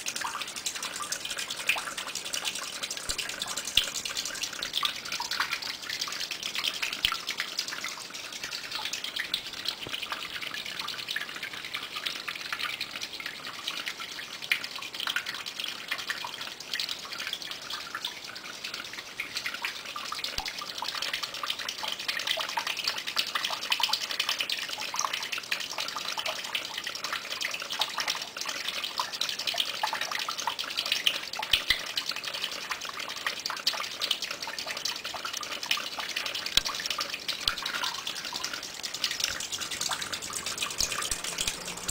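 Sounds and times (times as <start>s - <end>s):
water falling and splashing: 0.0s - 8.0s, 36.1s - 41.9s
dense patter of drips: 0.0s - 41.9s.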